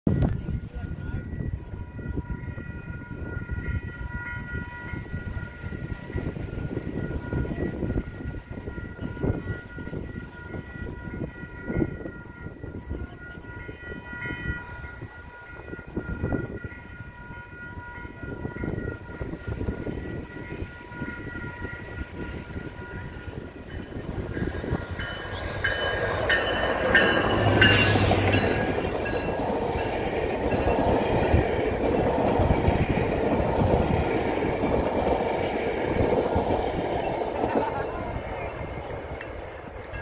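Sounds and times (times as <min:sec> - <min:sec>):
low train rumble: 0:00.1 - 0:40.0
train horn blasts: 0:25.1 - 0:29.2.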